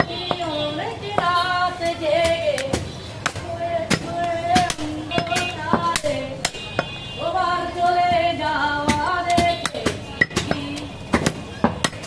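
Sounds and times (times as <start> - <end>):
cleaver chopping meat on wood: 8.9 - 12.0.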